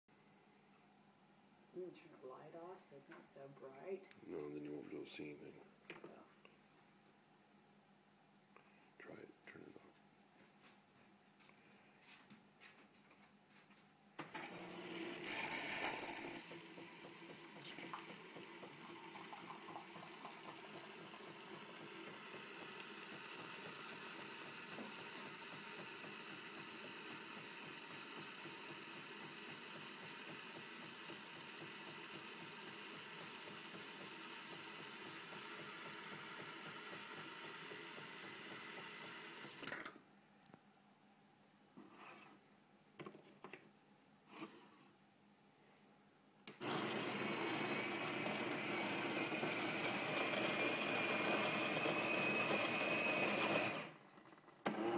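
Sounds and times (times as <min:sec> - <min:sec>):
coffee machine frothing milk: 0:14.2 - 0:39.7, 0:46.5 - 0:54.0, 0:54.6 - 0:54.9.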